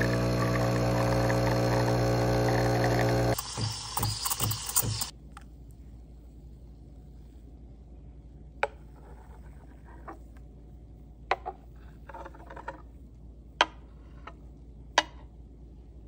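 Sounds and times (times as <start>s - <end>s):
metal pitcher clicking on mug: 3.4s - 5.1s.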